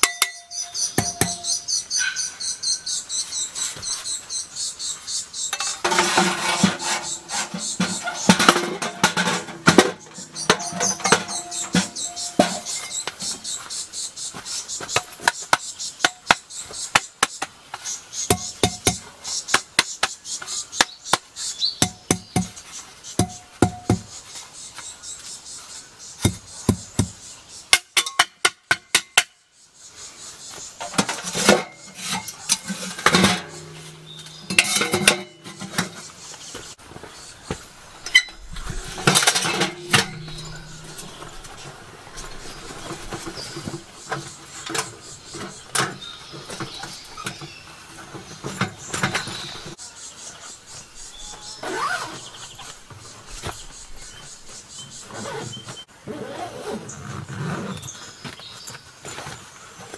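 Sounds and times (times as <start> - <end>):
parts clattering: 5.5 - 13.6, 30.8 - 49.8.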